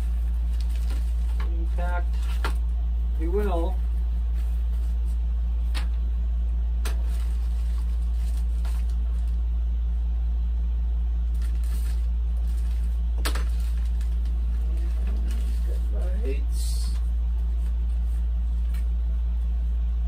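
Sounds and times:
plastic bags and paper crinkling: 0.0 - 2.7, 6.8 - 9.4, 11.3 - 16.3
steady low hum: 0.0 - 20.0.

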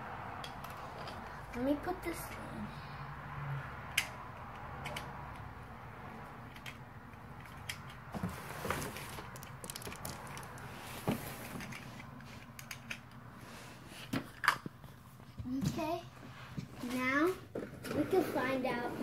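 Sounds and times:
plastic toy pieces clicking: 9.2 - 10.7.

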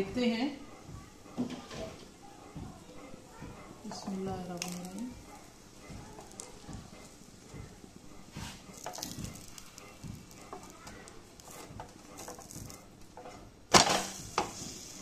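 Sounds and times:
faint sizzling: 0.0 - 15.0
spatula scraping frying pan: 8.2 - 13.3.

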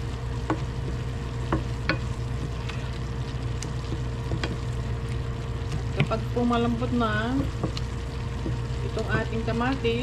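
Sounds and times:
food sizzling: 0.0 - 10.0
spatula scraping frying pan: 1.8 - 3.2.

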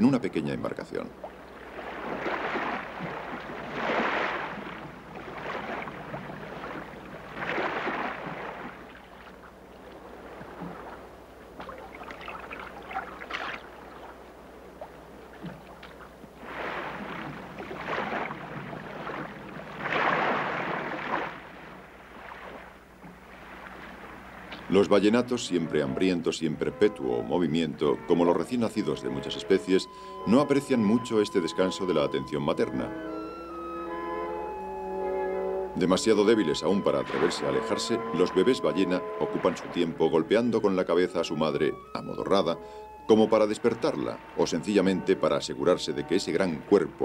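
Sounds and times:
water lapping: 0.0 - 33.1, 35.0 - 47.0
water splashing and whooshing: 0.9 - 24.9, 36.2 - 40.1.

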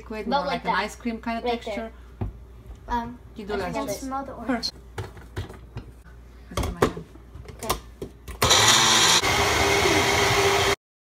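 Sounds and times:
blender motor whining: 8.4 - 10.8.

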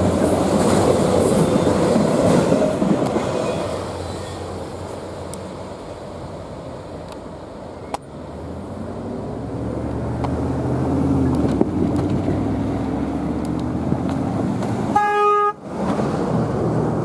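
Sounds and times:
freight train rumbling past: 0.0 - 17.0
train horn toot: 14.9 - 15.6.

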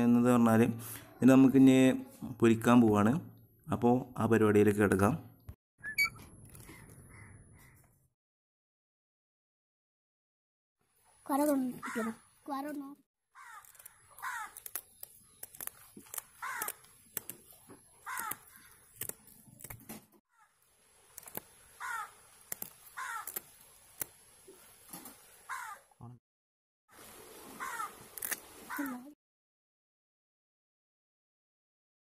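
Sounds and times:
crow cawing: 6.6 - 7.9, 11.8 - 12.3, 13.3 - 14.6, 16.4 - 16.9, 18.0 - 18.8, 21.8 - 22.2, 22.9 - 23.4, 25.5 - 25.9, 27.6 - 28.0, 28.7 - 29.0
scissors snipping: 13.6 - 20.0, 21.1 - 21.5, 22.4 - 24.2.

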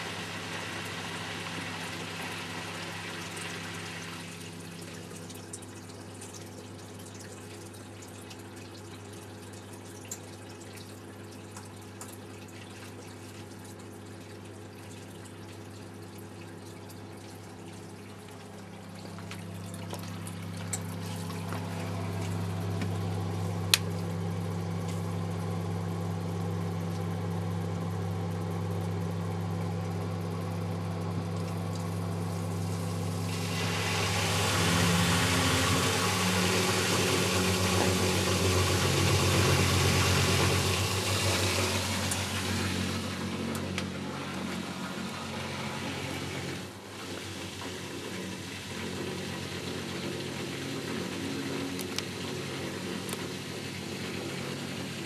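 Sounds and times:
washing machine pump hum: 0.0 - 55.0
water rushing and gurgling: 32.8 - 46.8.

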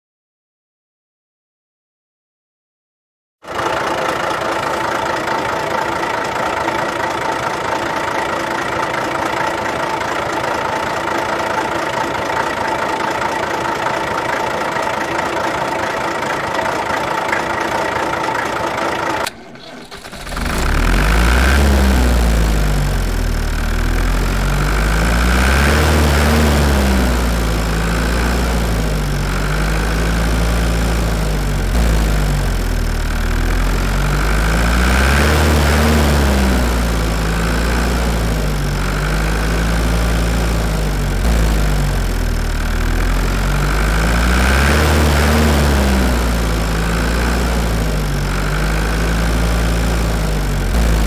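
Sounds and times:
engine revving: 18.7 - 51.0
mechanical drone: 19.2 - 51.0.

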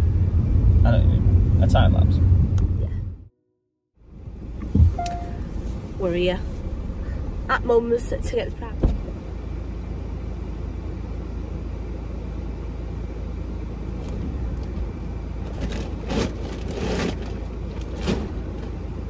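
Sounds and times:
car engine idling: 4.0 - 19.0.

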